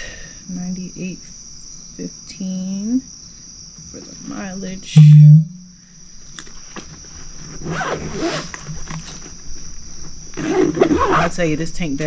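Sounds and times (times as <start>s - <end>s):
night insects droning: 0.0s - 12.0s
zipper being worked: 7.6s - 8.6s, 10.4s - 11.3s.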